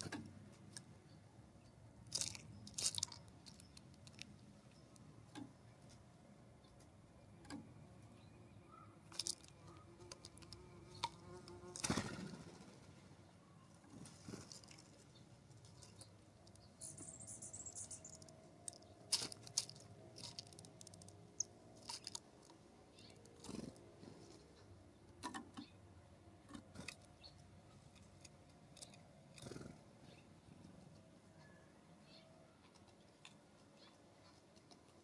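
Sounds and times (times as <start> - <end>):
birds pecking on wooden log: 2.1 - 6.1, 9.1 - 12.6, 13.8 - 16.7, 17.9 - 25.7, 26.4 - 31.1
high bird chatter: 8.2 - 24.7, 31.3 - 35.0.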